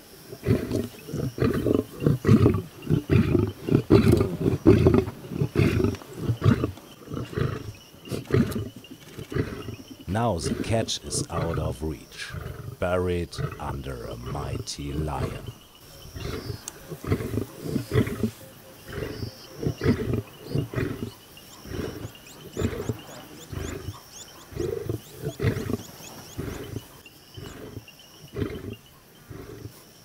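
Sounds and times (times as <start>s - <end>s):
lions growling: 0.2s - 29.9s.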